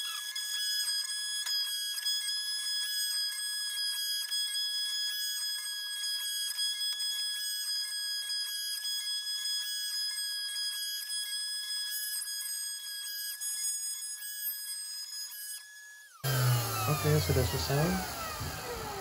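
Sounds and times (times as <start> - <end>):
router spindle high-pitched whine: 16.2 - 19.0.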